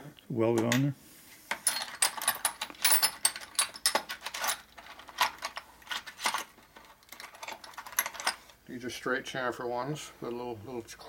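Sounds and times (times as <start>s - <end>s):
metal tools clinking in a plastic bin: 1.5s - 8.5s.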